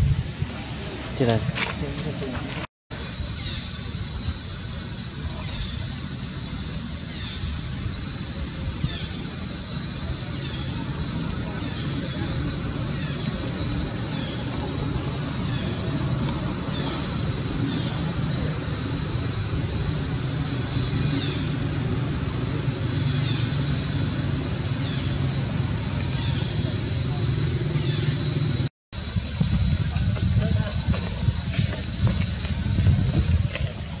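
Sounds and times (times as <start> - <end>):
high falling chirps: 2.9 - 28.7
thin high whine: 2.9 - 34.0.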